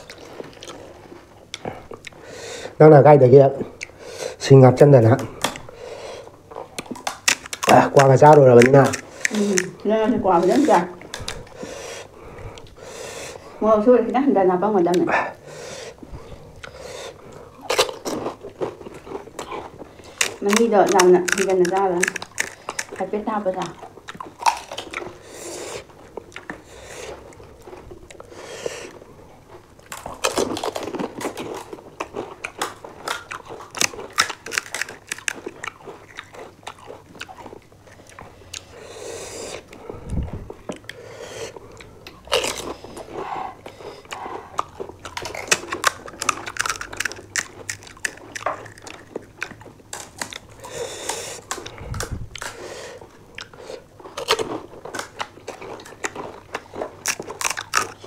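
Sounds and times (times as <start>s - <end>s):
wet chewing: 0.0s - 2.8s, 3.4s - 58.0s
crisp shells crunching: 6.6s - 11.6s, 17.6s - 25.2s, 29.5s - 37.6s, 42.1s - 43.1s, 44.8s - 58.0s.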